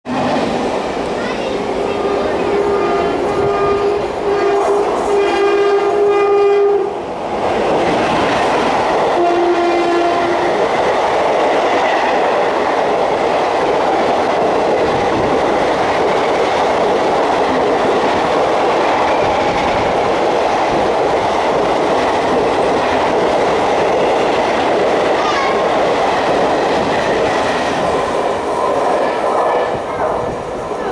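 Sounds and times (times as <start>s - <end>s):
rush of train coaches passing: 0.0s - 30.9s
locomotive horn: 2.4s - 7.0s, 9.2s - 10.6s.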